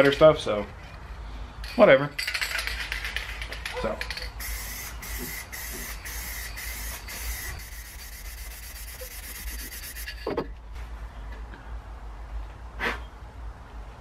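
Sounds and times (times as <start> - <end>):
spray can hissing: 4.0 - 10.2.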